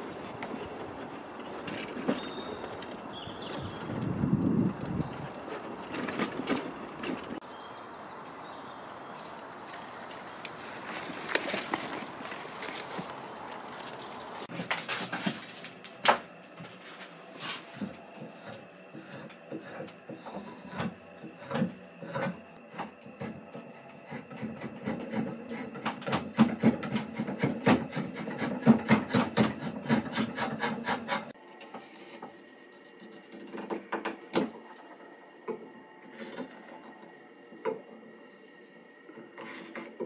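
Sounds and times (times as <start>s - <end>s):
hand file rasping on wood: 18.2s - 22.4s, 23.2s - 31.4s.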